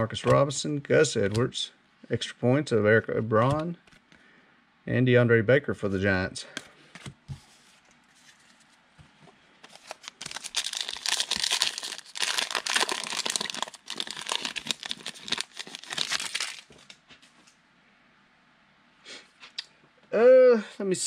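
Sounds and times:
plastic wrapper crinkling and tearing: 9.6s - 17.0s.

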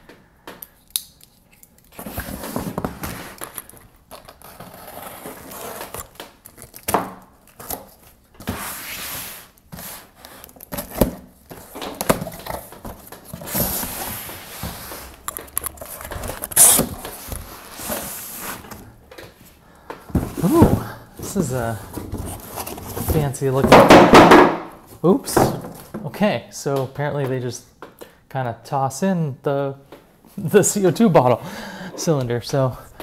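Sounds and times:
packing tape tearing: 0.7s - 8.1s, 14.9s - 17.4s
cardboard rustling and scraping: 2.0s - 6.9s, 7.5s - 24.3s
box knocks: 23.1s - 24.8s.

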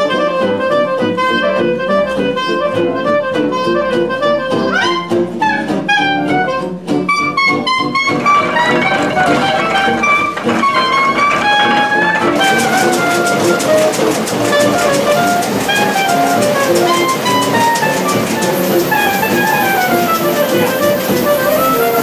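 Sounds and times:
melody of held notes: 0.0s - 22.0s
steady music beat: 8.2s - 22.0s.

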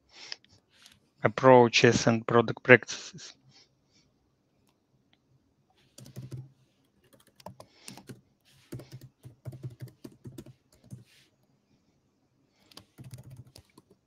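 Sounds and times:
typing on computer keyboard: 5.9s - 11.1s, 12.7s - 14.0s.

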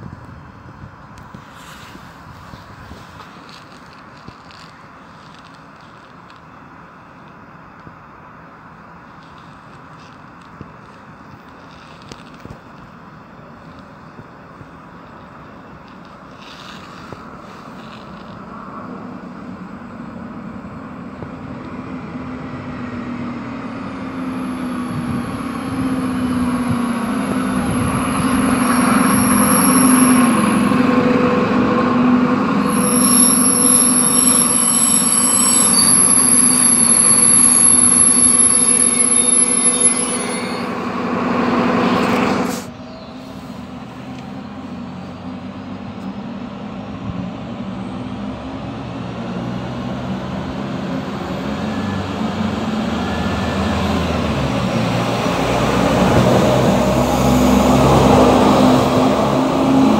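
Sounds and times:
diesel railcar engine and wheels: 0.0s - 59.9s
brake and wheel squeals: 15.1s - 18.5s, 21.4s - 44.5s.

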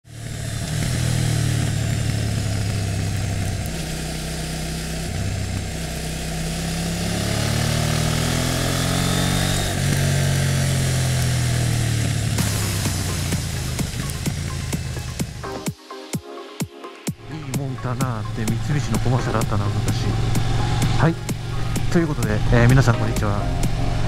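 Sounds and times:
motorcycle engine revving: 0.0s - 15.8s, 17.1s - 24.0s.

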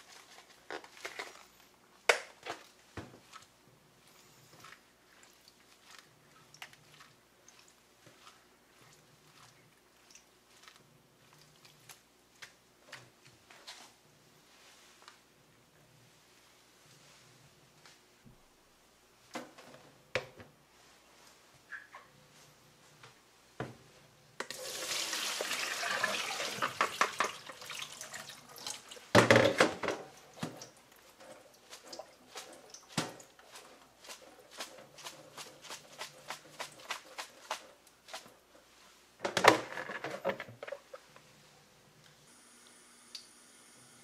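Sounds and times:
water pouring into metal sink: 24.5s - 29.1s
water drips: 30.2s - 33.6s.

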